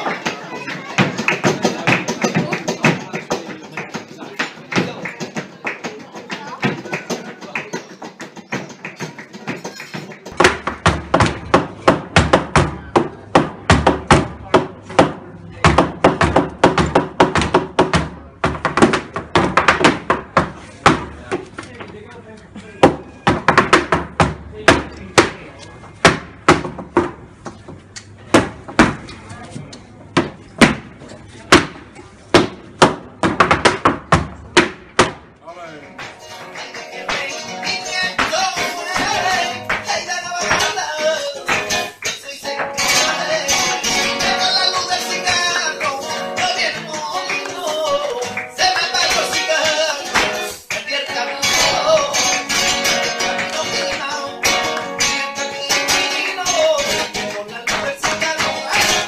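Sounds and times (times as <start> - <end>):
dance shoes stamping the floor: 0.0 - 21.5, 22.8 - 25.4, 30.2 - 35.3, 36.0 - 59.0
flamenco music: 0.0 - 21.7, 22.8 - 29.0, 30.2 - 59.0.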